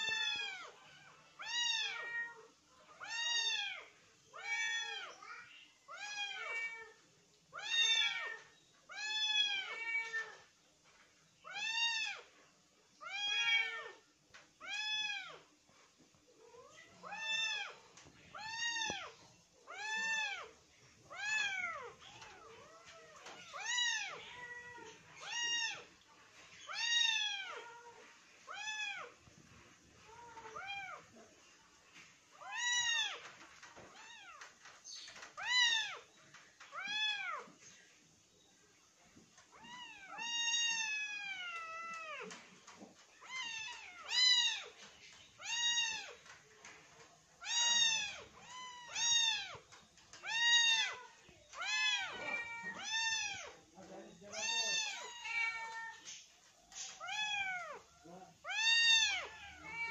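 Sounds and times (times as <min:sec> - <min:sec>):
kittens meowing: 0:39.5 - 0:46.2, 0:47.4 - 0:59.9.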